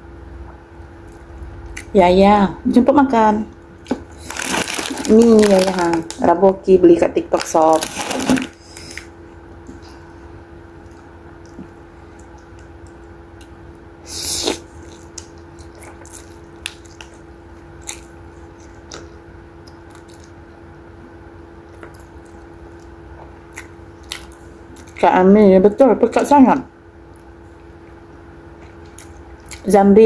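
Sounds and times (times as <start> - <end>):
faint steady hum: 0.0 - 30.0
wet chewing and mouth clicks: 10.8 - 20.5, 21.6 - 25.1, 27.0 - 29.7.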